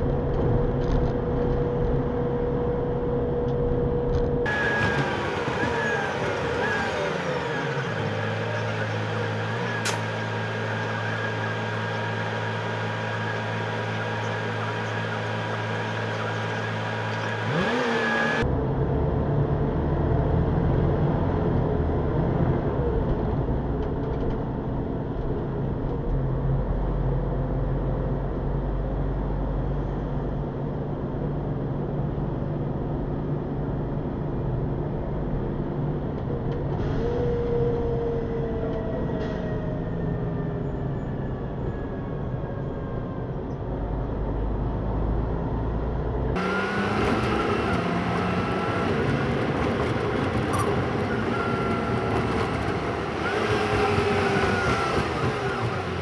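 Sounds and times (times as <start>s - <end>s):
bus engine running: 0.0s - 56.0s.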